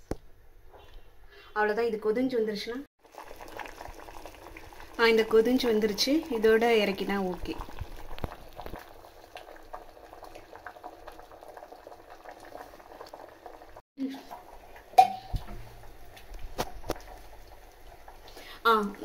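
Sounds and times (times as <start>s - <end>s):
stew bubbling at low boil: 3.0s - 19.0s
metal pans clanking: 15.0s - 15.6s.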